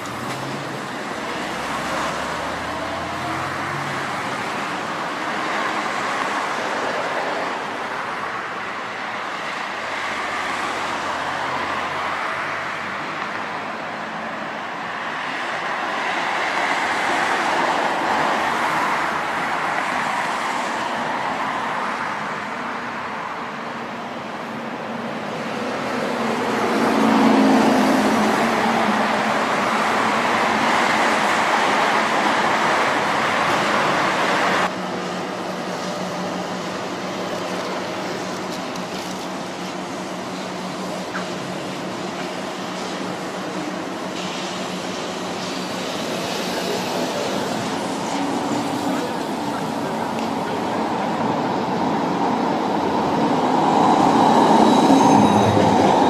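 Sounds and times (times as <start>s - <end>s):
traffic rolling rush: 0.0s - 56.0s.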